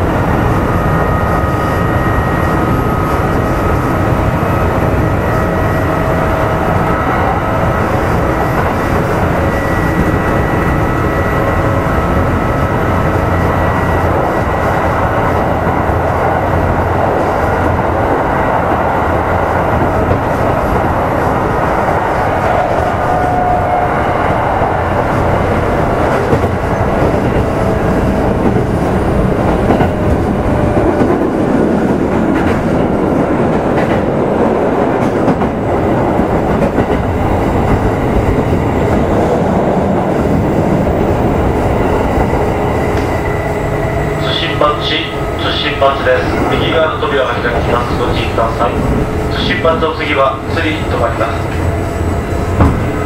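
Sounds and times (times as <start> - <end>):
train wheels rumbling on rail: 0.0 - 53.0
clacks over rail joints: 30.8 - 38.6, 52.5 - 53.0.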